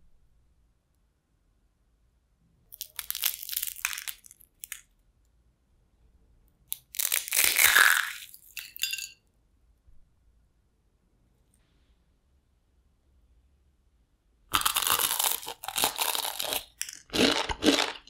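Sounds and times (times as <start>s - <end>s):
crispy fried potato crunching: 2.7s - 4.8s, 6.8s - 8.9s, 14.5s - 18.0s.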